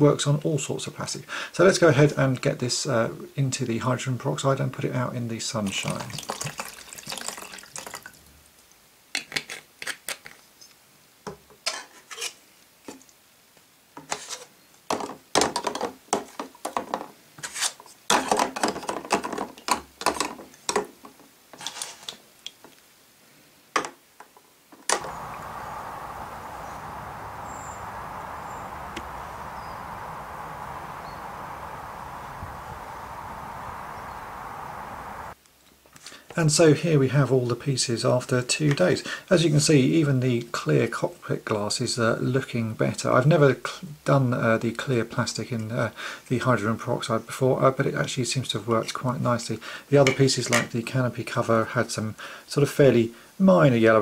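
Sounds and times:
outdoor background hiss: 0:00.0 - 0:54.0
faint high chirps: 0:25.0 - 0:35.4.

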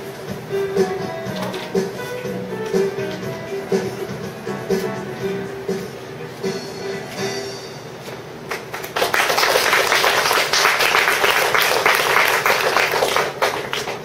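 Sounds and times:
audience applauding: 0:08.5 - 0:14.0.

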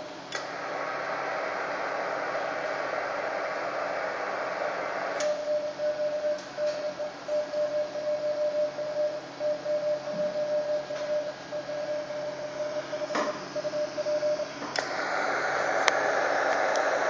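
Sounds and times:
radio receiver hiss: 0:00.3 - 0:06.9, 0:12.3 - 0:17.0
morse code tone: 0:05.4 - 0:14.5.

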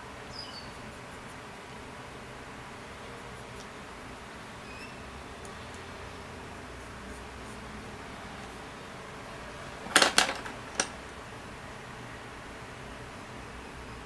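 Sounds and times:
faint steady hiss: 0:00.0 - 0:14.0
pencils clattering on wooden table: 0:09.7 - 0:11.0.

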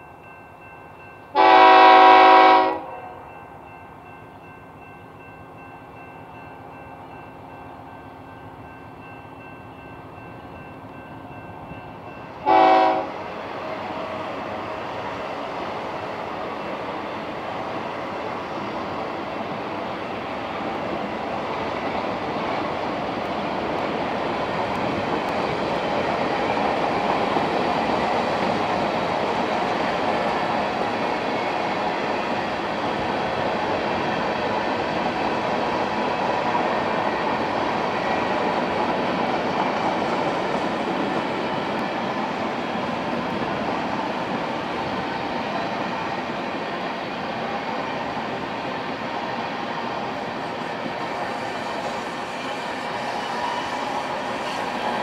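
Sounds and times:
train wheels on rails: 0:00.0 - 0:55.0
locomotive horn blast: 0:01.3 - 0:03.0, 0:12.4 - 0:13.2.

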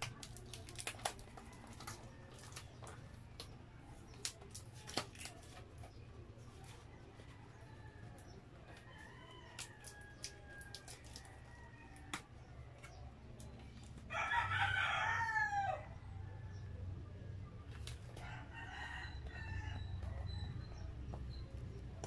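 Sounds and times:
food packaging clicks: 0:00.0 - 0:03.5
rooster crowing: 0:14.1 - 0:16.4, 0:18.2 - 0:20.4.

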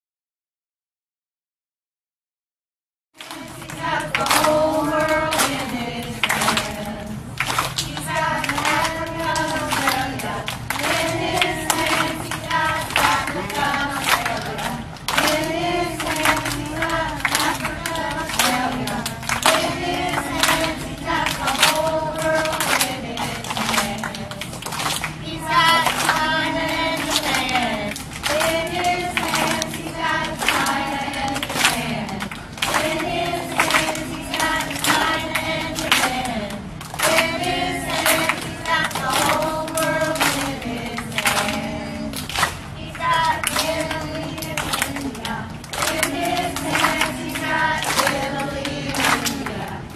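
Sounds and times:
children singing together: 0:03.2 - 0:49.9
rhythmic hand clapping: 0:03.2 - 0:49.9.

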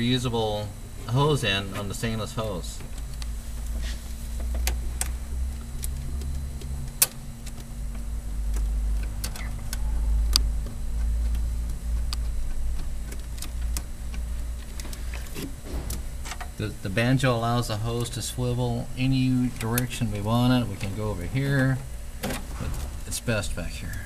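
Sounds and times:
low rumble: 0:17.6 - 0:24.0.

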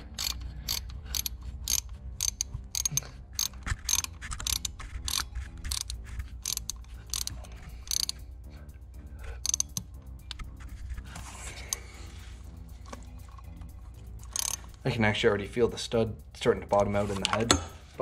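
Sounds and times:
ratchet clicking: 0:00.0 - 0:08.4, 0:09.2 - 0:10.6, 0:11.6 - 0:14.9.

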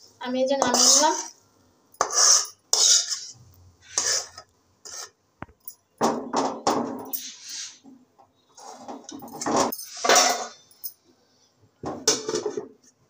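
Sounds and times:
metal spatula scraping steel pan: 0:00.6 - 0:01.4, 0:02.0 - 0:05.2, 0:07.1 - 0:07.8.

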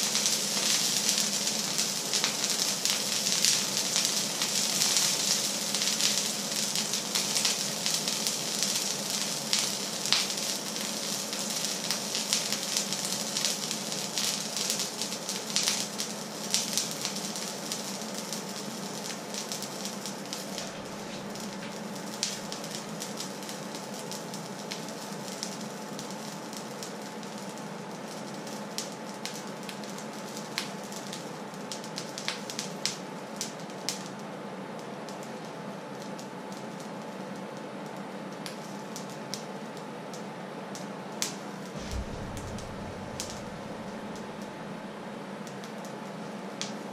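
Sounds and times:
pan sizzling and crackling: 0:00.0 - 0:26.2
steady low hum: 0:41.8 - 0:45.1.

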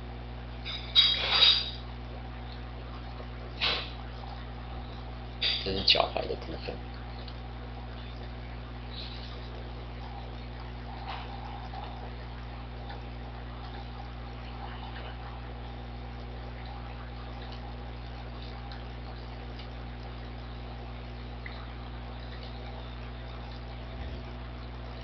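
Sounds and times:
electrical hum and hiss: 0:00.0 - 0:25.0.

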